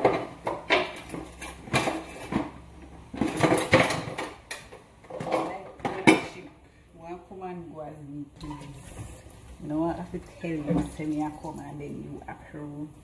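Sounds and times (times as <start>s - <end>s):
dishes and cutlery clattering: 0.0s - 2.6s, 3.2s - 6.3s.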